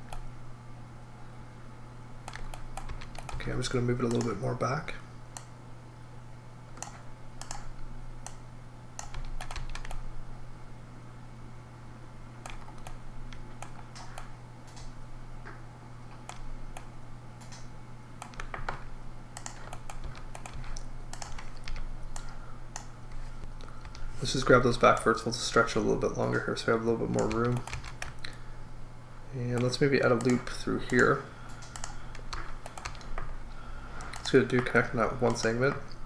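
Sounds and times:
steady low hum: 0:00.0 - 0:36.0
keyboard keys clicking: 0:02.3 - 0:03.4, 0:09.0 - 0:10.0, 0:12.4 - 0:14.9, 0:16.2 - 0:18.8, 0:19.4 - 0:22.9, 0:27.1 - 0:28.3, 0:29.6 - 0:33.3.

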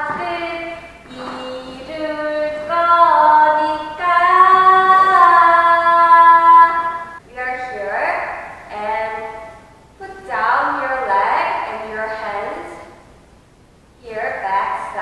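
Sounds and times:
woman singing: 0:00.0 - 0:08.0.

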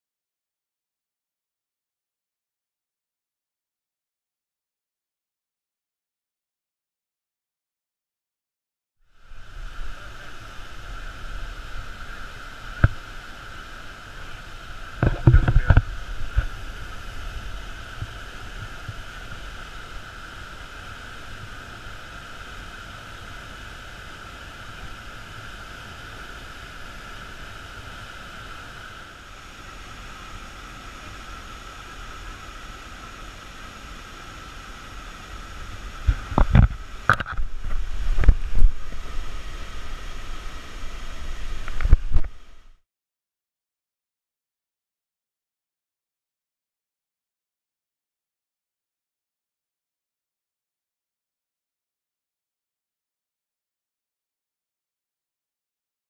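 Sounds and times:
waterfall roaring: 0:09.2 - 0:42.7
wind bumps on microphone: 0:15.0 - 0:19.1, 0:35.8 - 0:40.2, 0:41.3 - 0:42.4.

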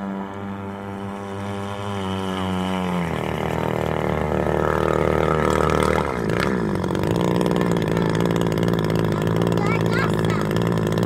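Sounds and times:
model boat petrol engine running: 0:00.0 - 0:11.0.

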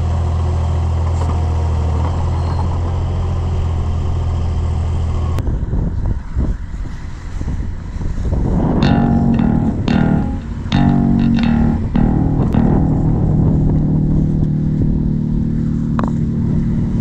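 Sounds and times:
guitar chords with bass: 0:08.6 - 0:17.0.

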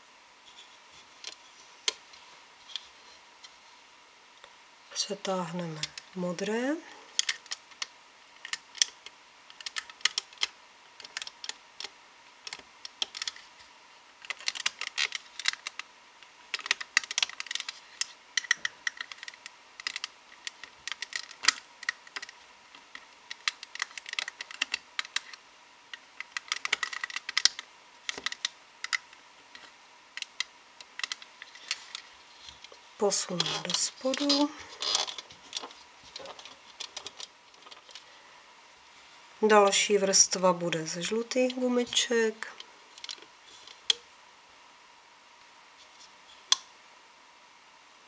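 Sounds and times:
crochet hook clicking on plastic pegs: 0:08.5 - 0:11.9.

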